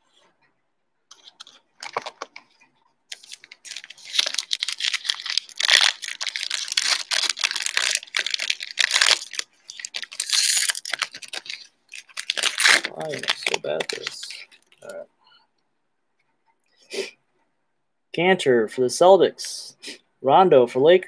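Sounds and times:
foil wrapper tearing and crinkling: 1.1 - 2.4, 3.1 - 14.9.

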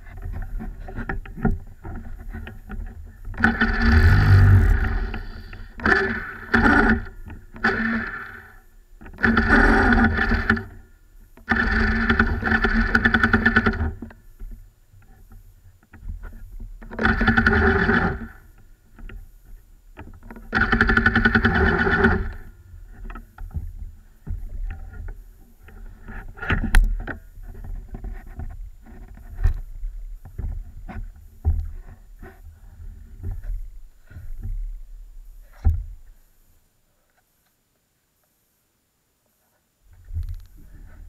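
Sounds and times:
kart engine revving and idling: 3.4 - 8.4.

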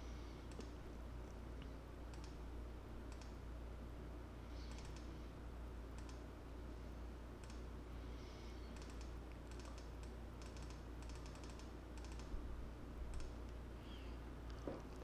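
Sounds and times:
steady low hum: 0.0 - 15.0
mouse and keyboard clicks: 2.1 - 2.4, 4.6 - 5.1, 8.8 - 12.3.

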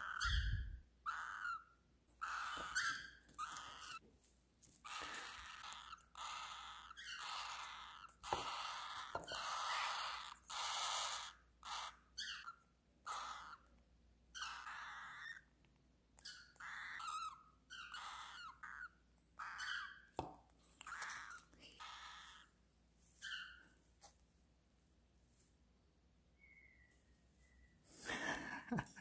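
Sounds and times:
chicks raspy begging calls: 1.1 - 4.0, 4.9 - 13.6, 14.4 - 15.4, 16.3 - 20.0.

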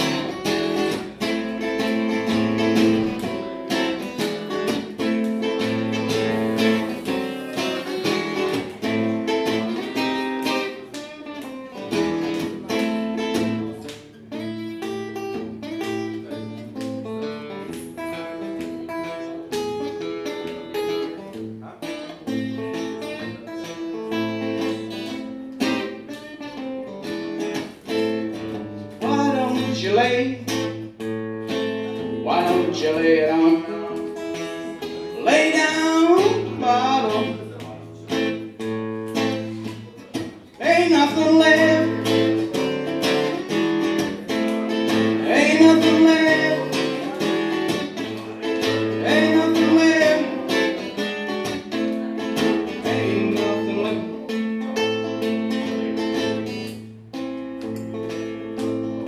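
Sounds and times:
acoustic guitar strumming: 0.0 - 59.0
man singing: 6.3 - 10.0, 28.9 - 30.7, 32.0 - 38.3, 40.5 - 42.5, 44.3 - 51.4, 52.4 - 54.6.

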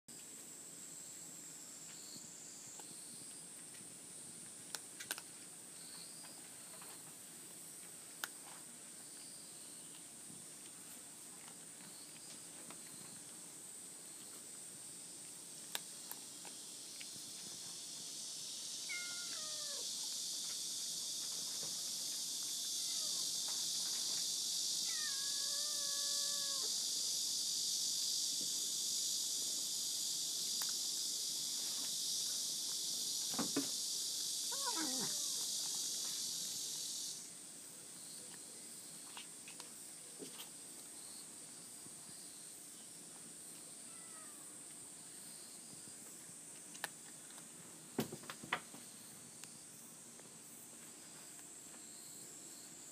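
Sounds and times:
high-pitched hiss: 11.9 - 52.9
cat meowing: 18.9 - 19.8, 22.8 - 23.3, 24.8 - 26.7, 34.5 - 35.5, 43.8 - 44.4.

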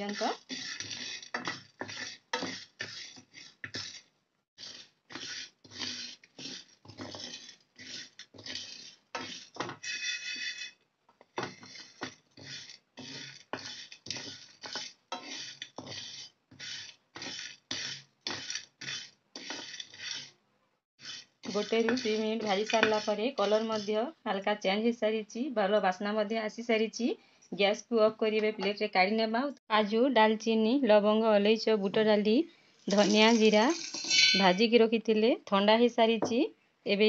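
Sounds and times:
spatula scraping in pan: 0.0 - 20.4, 21.0 - 24.1, 32.9 - 34.6
seeds rattling in pan: 32.9 - 34.6.

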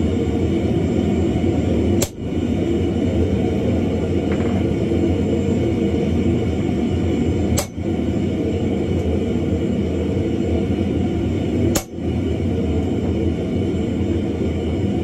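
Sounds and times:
steady low roar: 0.0 - 15.0
hammer striking metal punch: 7.6 - 7.8.

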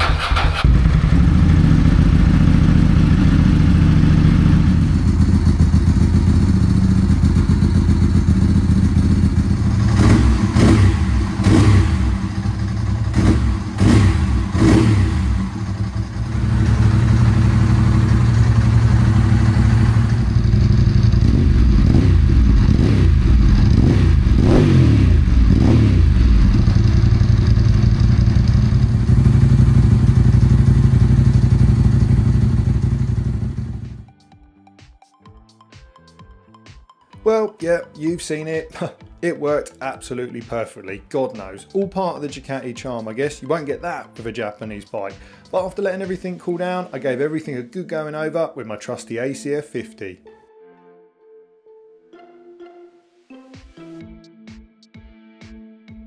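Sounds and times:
motorcycle engine idling and revving: 0.0 - 34.1.

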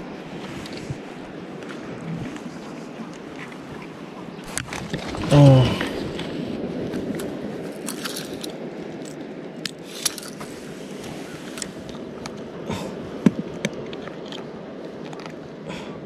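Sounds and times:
sea water washing: 0.0 - 16.0
gear clicking and scraping: 7.2 - 10.4.

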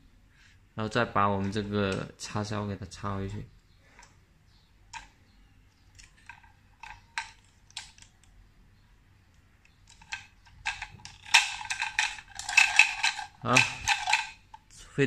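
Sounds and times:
plastic parts clicking and snapping: 5.9 - 8.4, 9.3 - 14.7.

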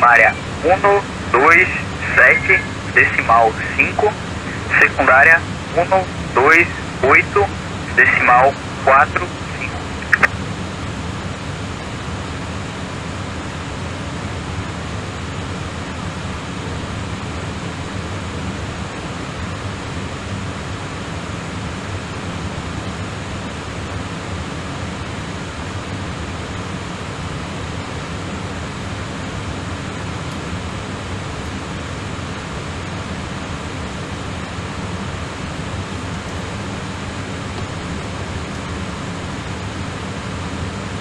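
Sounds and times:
airliner cockpit air and engine rush: 0.0 - 41.0.

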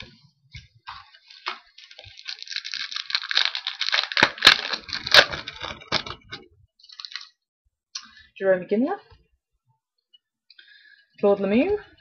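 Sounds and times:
wrapper crinkling as torn open: 1.3 - 7.4.

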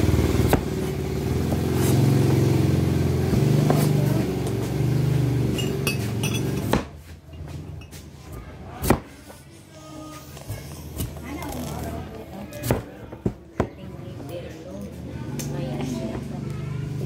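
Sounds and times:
engine rumbling: 0.0 - 8.6, 14.9 - 17.0.

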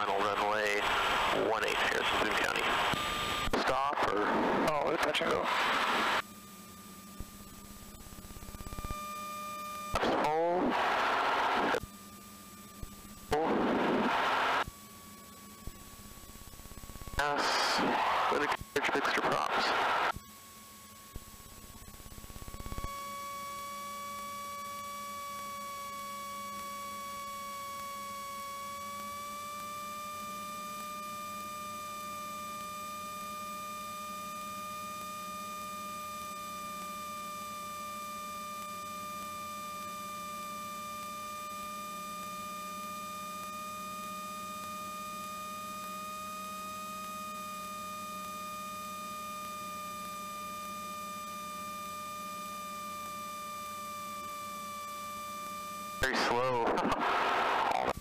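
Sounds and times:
low hum: 0.0 - 27.2
aircraft engine whine: 0.0 - 58.0.

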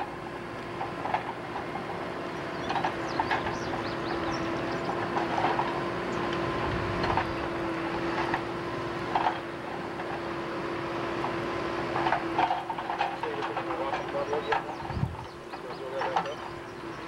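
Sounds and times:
machinery hum and rumble: 0.0 - 17.0.

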